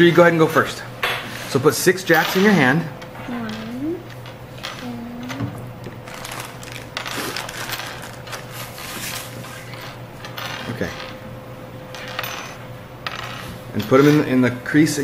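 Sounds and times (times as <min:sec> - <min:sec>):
jacks clattering on wooden table: 0:02.2 - 0:11.2, 0:11.9 - 0:14.3.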